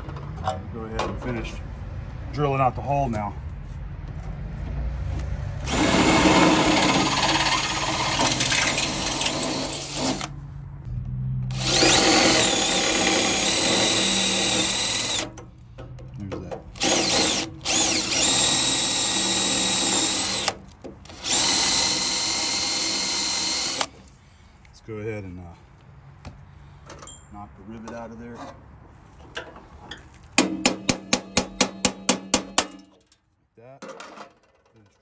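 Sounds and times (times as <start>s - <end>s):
cordless drill drilling metal: 5.7s - 10.3s, 11.5s - 15.4s, 16.8s - 24.0s.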